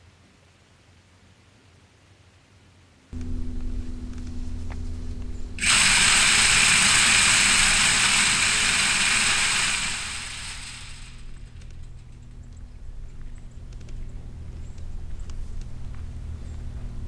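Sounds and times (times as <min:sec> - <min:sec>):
feeder spinner motor humming: 0:03.2 - 0:17.0
feed rattling spray: 0:04.3 - 0:11.8.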